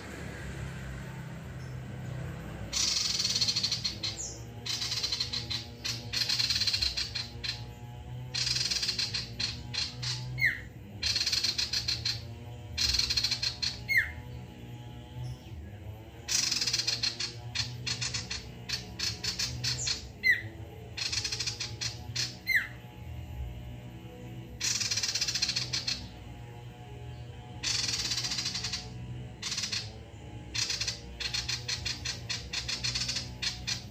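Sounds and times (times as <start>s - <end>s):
steady low hum: 0.0s - 33.9s
bird chattering song: 1.6s - 14.6s, 15.2s - 22.8s, 24.5s - 26.4s, 27.1s - 33.9s.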